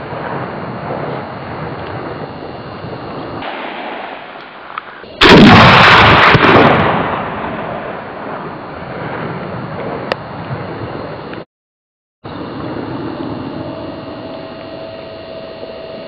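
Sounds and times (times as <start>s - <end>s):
rifle shot: 3.4s - 8.4s.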